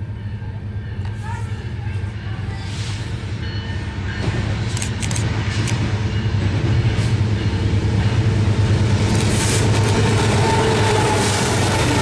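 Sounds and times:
diesel train engine drone: 0.0 - 12.0
sharp clicks: 4.7 - 5.8.

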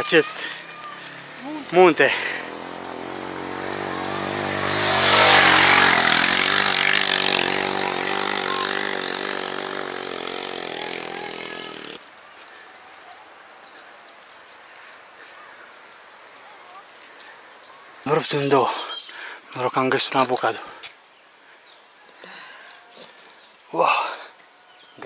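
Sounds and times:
vehicle engine passing by: 0.4 - 12.0.

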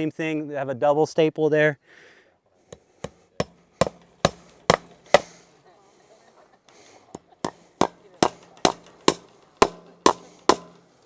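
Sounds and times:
hammer striking staples into wood: 2.7 - 5.4, 7.2 - 11.0.

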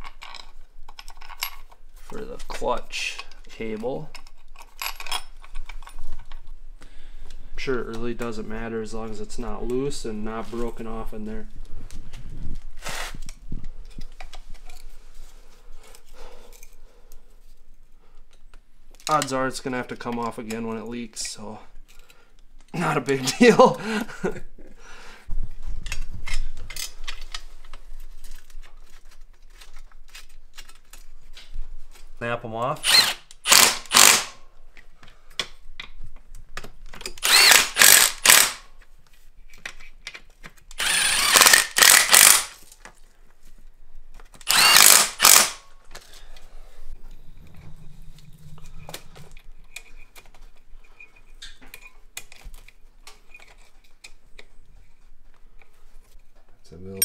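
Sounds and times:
metal parts and tools clinking: 0.0 - 6.4
power tool whirring: 32.8 - 34.3, 37.2 - 38.6, 40.8 - 42.6, 44.4 - 45.6.

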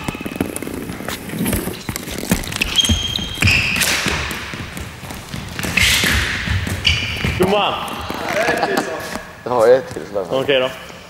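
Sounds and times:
short high squeaks: 2.4 - 4.1, 5.6 - 7.5.

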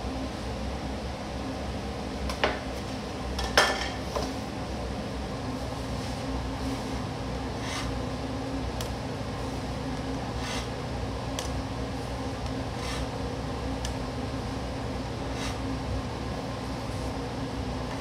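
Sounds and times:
mechanical hum: 0.0 - 18.0
knife slicing dough on board: 7.6 - 7.9, 10.4 - 10.7, 12.8 - 13.1, 15.3 - 15.6.

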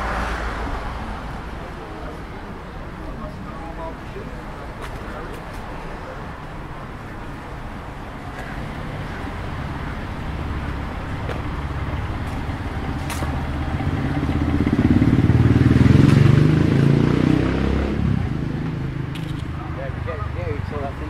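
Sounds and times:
vehicle engine passing: 0.0 - 3.9, 8.5 - 21.0.

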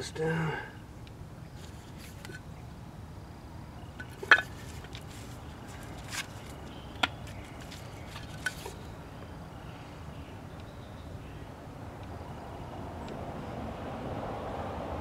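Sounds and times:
low background noise: 0.0 - 15.0
sharp clicks and knocks of wood: 4.0 - 8.8.

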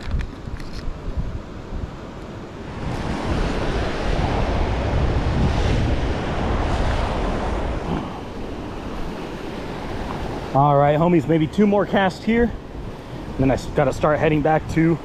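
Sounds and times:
wind on microphone: 0.0 - 10.6
surf washing against rocks: 2.6 - 15.0.

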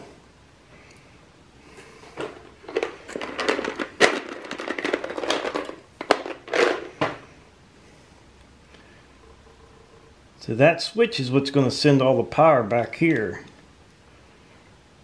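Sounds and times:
wires rustling and crackling: 0.8 - 7.0.

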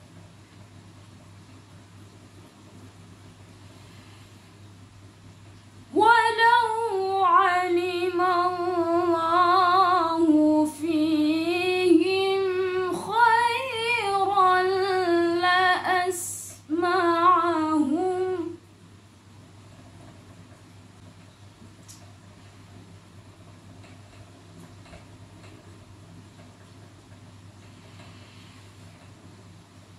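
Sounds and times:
woman reciting melodically: 5.9 - 18.6.

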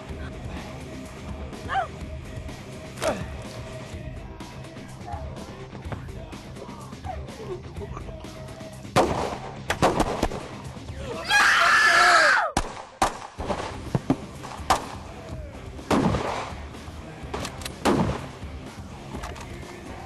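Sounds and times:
shotgun blasts: 9.0 - 10.6, 15.9 - 16.6, 17.7 - 18.3
person screaming: 11.1 - 12.5.

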